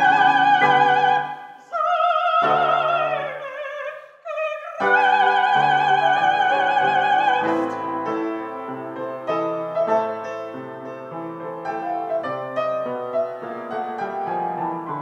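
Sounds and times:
grand piano chords: 0:00.0 - 0:03.9, 0:04.8 - 0:15.0
operatic soprano singing: 0:00.0 - 0:08.5.

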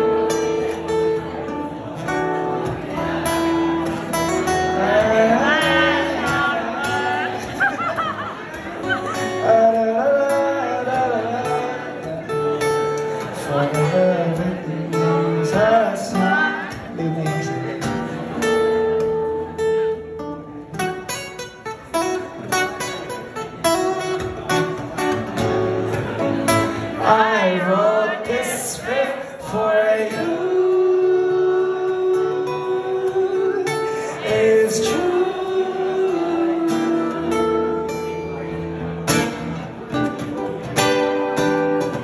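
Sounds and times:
acoustic guitar playing: 0:00.0 - 0:42.0
person singing wordlessly: 0:04.5 - 0:07.7, 0:09.3 - 0:12.2, 0:13.4 - 0:17.8, 0:27.0 - 0:38.3.

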